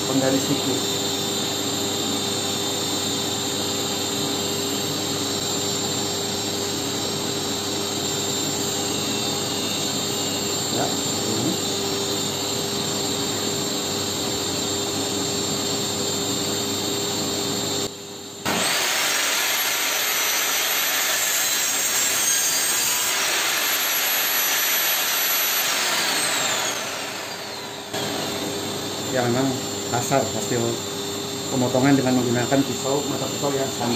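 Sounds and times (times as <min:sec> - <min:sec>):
steady machine hum: 0:00.0 - 0:33.9
saw cutting plywood: 0:18.5 - 0:28.3
table saw spinning: 0:18.5 - 0:29.4.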